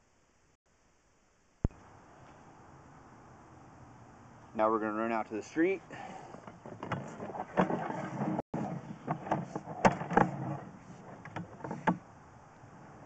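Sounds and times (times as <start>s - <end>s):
camera cable scraping in pipe: 6.6s - 12.0s.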